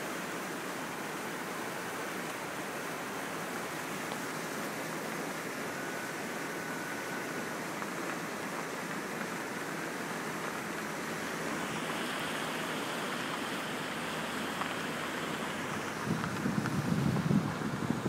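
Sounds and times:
river water rushing: 0.0 - 18.0
wind buffeting microphone: 15.6 - 18.0.

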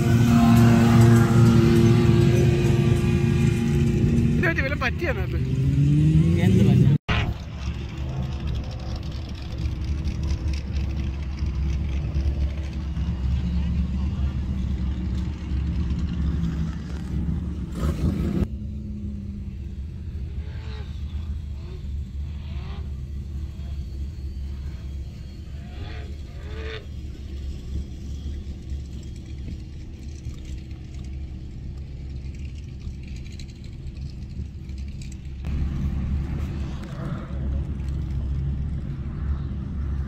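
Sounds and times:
open-air vehicle noise: 0.0 - 40.0
vehicle engine and tyre rumble: 0.0 - 40.0.

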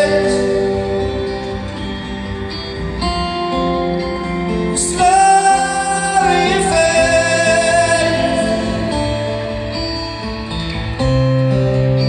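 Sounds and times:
acoustic guitar: 0.0 - 12.0
person singing wordless notes: 4.1 - 9.8.

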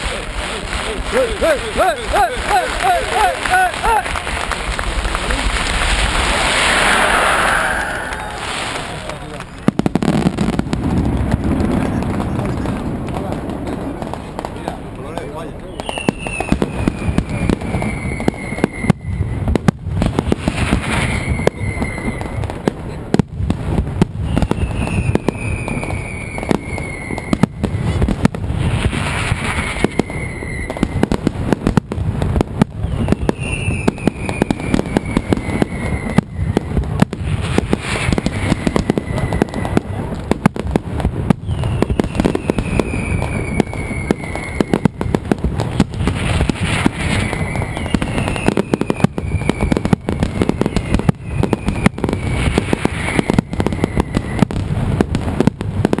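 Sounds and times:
rapid firecracker bangs: 0.0 - 56.0
high falling whistle: 6.1 - 9.4, 20.9 - 22.4, 29.4 - 31.0, 32.8 - 36.8, 38.1 - 39.8, 41.4 - 45.1, 46.9 - 54.4.

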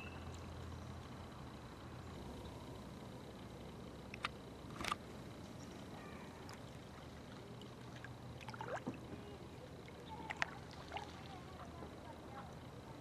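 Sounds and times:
quiet river ambience: 0.0 - 13.0
paddle knocks and water sounds: 7.9 - 9.3.

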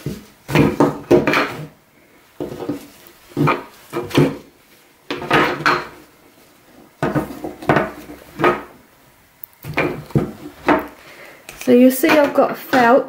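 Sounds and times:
plastic knocks and scrapes: 0.0 - 1.8, 2.4 - 4.5, 6.8 - 8.8, 9.6 - 11.0
fabric rustling: 1.6 - 8.6.

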